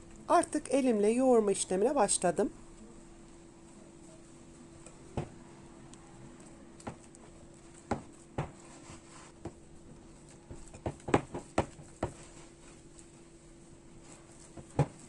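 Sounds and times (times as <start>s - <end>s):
dough slapping and squelching on glass: 6.8s - 13.0s.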